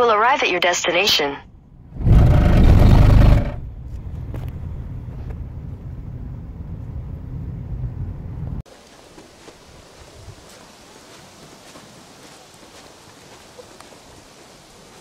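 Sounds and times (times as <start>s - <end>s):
car road and engine rumble: 1.5s - 8.6s.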